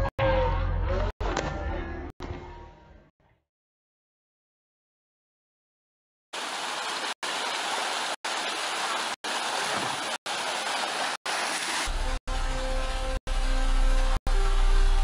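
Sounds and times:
water rushing down a slide: 0:06.4 - 0:12.1.

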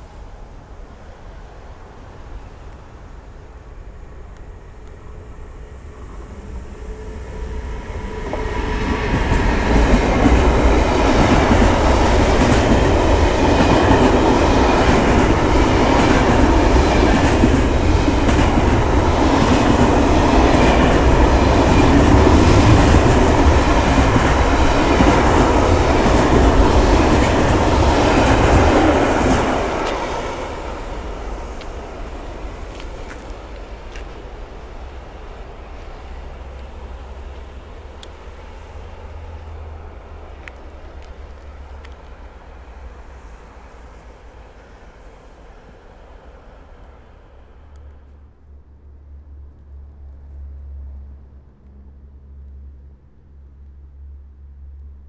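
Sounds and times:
freight train passing: 0:00.0 - 0:55.0
wheels clacking over rail joints: 0:08.2 - 0:34.9.

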